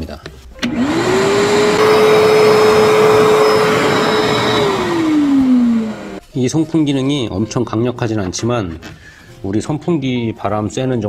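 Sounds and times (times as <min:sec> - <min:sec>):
vacuum motor whining: 0:00.6 - 0:06.2.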